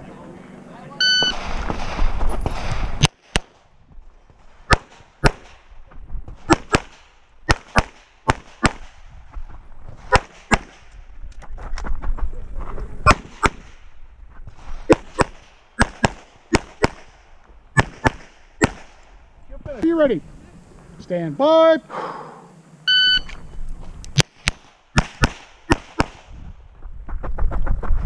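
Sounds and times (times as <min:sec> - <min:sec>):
rapid pistol fire: 0:01.3 - 0:03.6, 0:04.7 - 0:05.6, 0:06.4 - 0:09.0, 0:10.1 - 0:10.9, 0:14.8 - 0:17.2, 0:17.8 - 0:19.1, 0:24.2 - 0:26.4.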